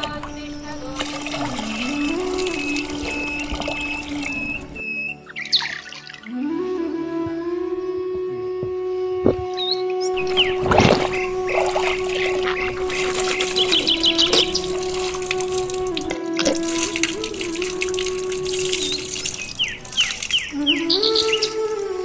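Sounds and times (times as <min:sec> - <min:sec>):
trickling water: 0:00.0 - 0:06.3, 0:10.2 - 0:21.8
melodic line: 0:00.0 - 0:06.4.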